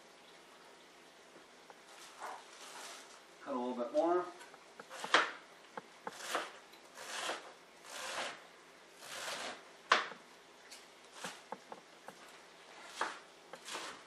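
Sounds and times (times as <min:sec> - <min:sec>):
knife slicing lettuce: 0:04.9 - 0:05.4, 0:06.1 - 0:08.4, 0:09.0 - 0:10.0, 0:11.1 - 0:11.6, 0:12.8 - 0:14.0.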